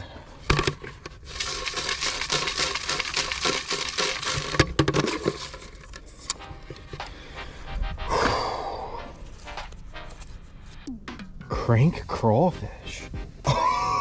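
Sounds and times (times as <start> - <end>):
paper slips rustling: 0.6 - 7.1.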